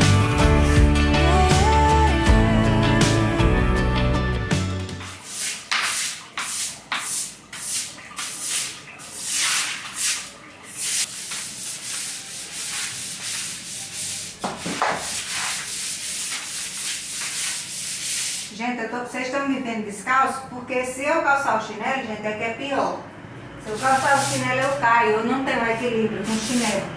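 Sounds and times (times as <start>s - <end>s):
push broom scrubbing wet tiles: 5.0s - 18.6s, 23.6s - 24.9s, 25.7s - 26.9s.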